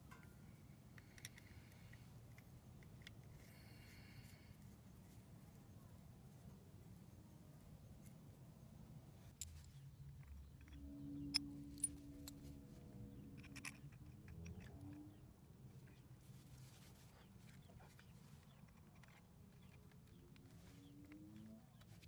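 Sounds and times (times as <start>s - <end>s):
faint metal clicks and clinks: 0.0s - 5.2s, 9.3s - 16.1s, 17.3s - 21.9s
faint steady hum: 0.0s - 22.0s.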